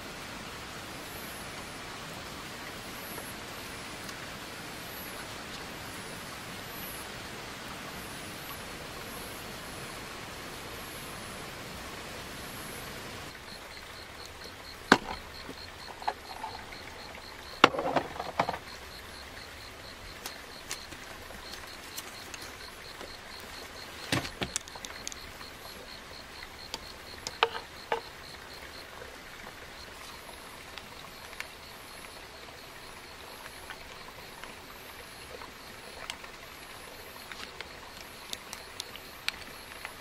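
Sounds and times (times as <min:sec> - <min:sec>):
insects chirping: 0:00.1 - 0:40.0
clicks and knocks from handling: 0:14.9 - 0:16.8, 0:17.6 - 0:18.7.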